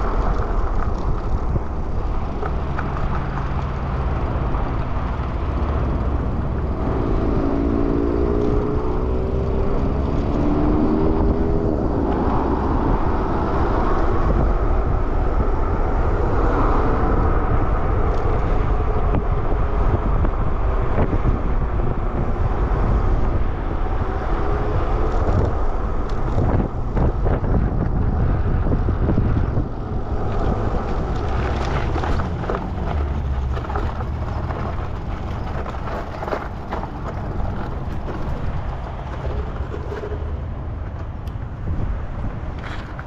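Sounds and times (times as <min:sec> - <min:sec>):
tyres crunching over gravel: 0:00.0 - 0:09.3, 0:30.1 - 0:43.0
tyre noise on pavement: 0:00.0 - 0:43.0
wind over microphone: 0:00.0 - 0:43.0.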